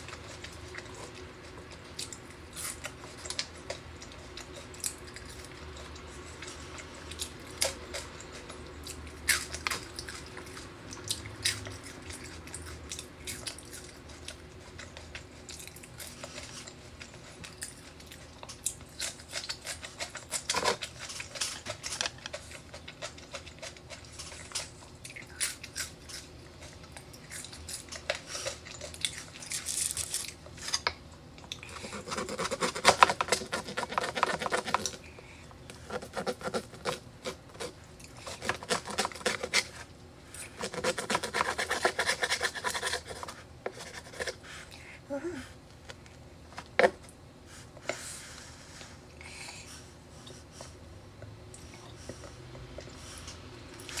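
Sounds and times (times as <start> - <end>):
chewing crunchy food: 0.0 - 44.8, 48.8 - 54.0
knife sawing on cutting board: 31.9 - 34.7, 40.6 - 43.3.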